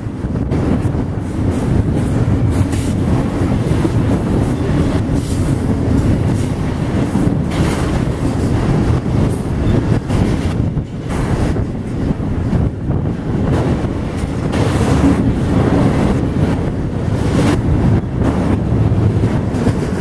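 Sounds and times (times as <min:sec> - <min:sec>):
steel wheels rumbling on rail: 0:00.0 - 0:20.0.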